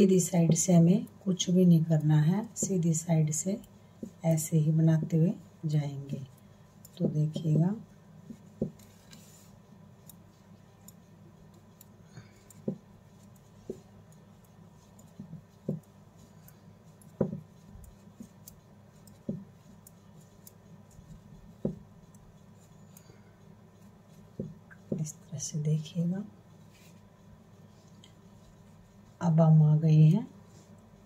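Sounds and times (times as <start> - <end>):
knitting needles clicking: 10.0 - 23.1.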